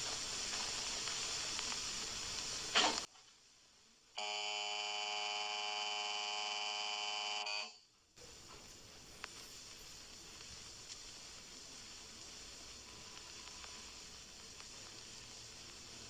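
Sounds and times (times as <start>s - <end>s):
steady hiss: 0.0s - 4.9s, 7.9s - 16.0s
electric buzzer: 4.2s - 7.8s.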